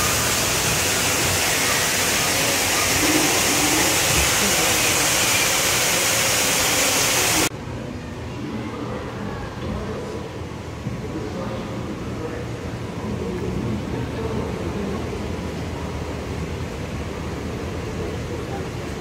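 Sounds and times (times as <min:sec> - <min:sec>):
rush of falling water: 0:00.0 - 0:07.5
water murmur: 0:00.0 - 0:07.5.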